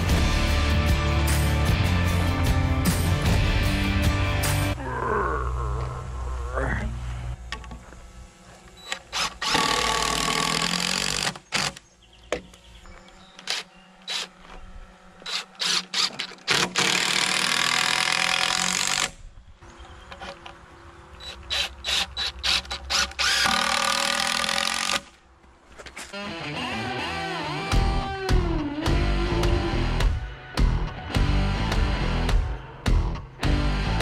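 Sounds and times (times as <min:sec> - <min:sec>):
cordless drill driving screws: 0:08.8 - 0:11.8, 0:13.4 - 0:19.2, 0:21.2 - 0:25.2.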